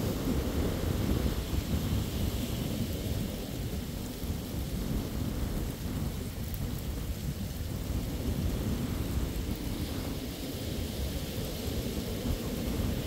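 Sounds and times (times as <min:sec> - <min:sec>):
wind buffeting microphone: 0:00.0 - 0:13.0
small waves breaking on sand: 0:08.0 - 0:13.0.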